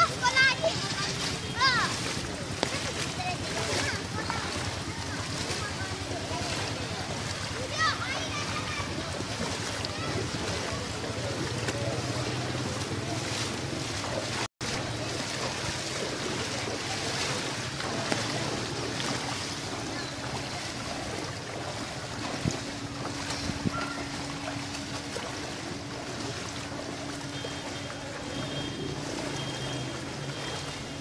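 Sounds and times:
floodwater rushing: 0.0 - 31.0
wind buffeting microphone: 17.8 - 24.6.

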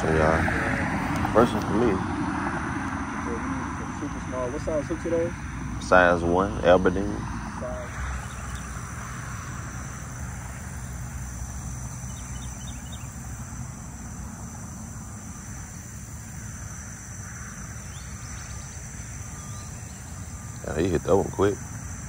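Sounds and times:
high insect drone: 0.0 - 22.0
faint chirps: 7.6 - 22.0.

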